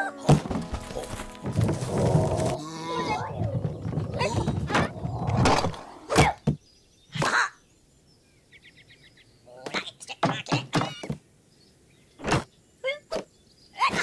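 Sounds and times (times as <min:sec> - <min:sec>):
sharp thunks: 0:00.3 - 0:06.6, 0:12.2 - 0:12.5
creature vocal noises: 0:01.7 - 0:06.4.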